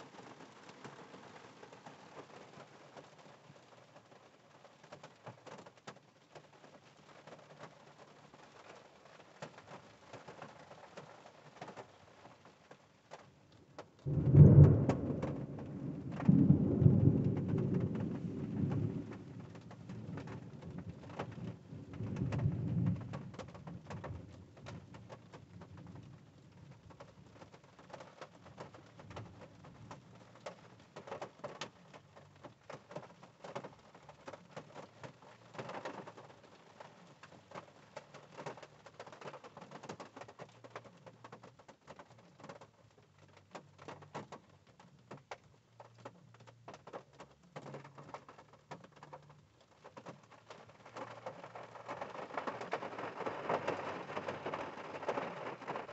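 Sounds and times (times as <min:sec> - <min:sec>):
rain on car roof: 0:00.0 - 0:55.9
thunder rumbling: 0:14.0 - 0:23.4.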